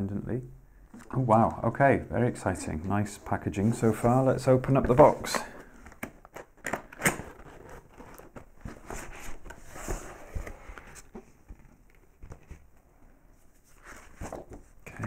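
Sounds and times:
packaging scraping and rustling: 5.1 - 11.1.

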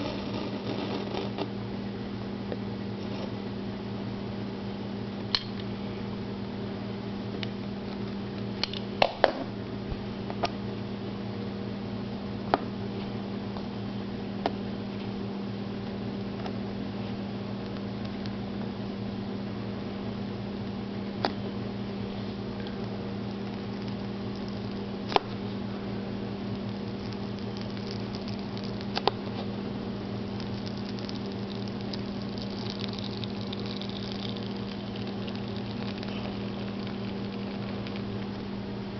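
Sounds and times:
steady low hum: 0.0 - 38.9.

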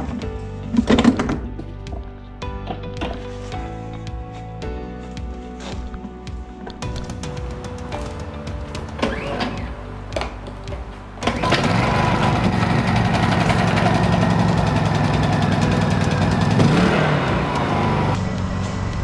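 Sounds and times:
generator pull-start: 6.9 - 10.6, 11.2 - 18.2
generator engine running: 7.0 - 19.0.

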